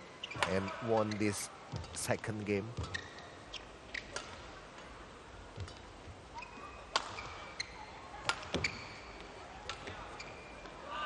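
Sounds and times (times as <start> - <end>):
shoes squeaking on court: 0.2 - 4.5, 5.5 - 10.8
racquet hitting shuttlecock: 3.9 - 4.5, 6.9 - 8.8.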